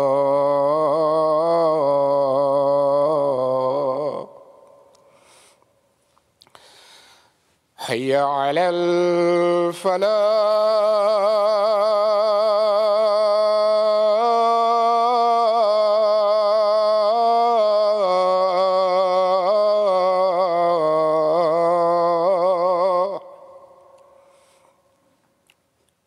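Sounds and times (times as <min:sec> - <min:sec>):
man chanting call to prayer: 0:07.8 - 0:23.8.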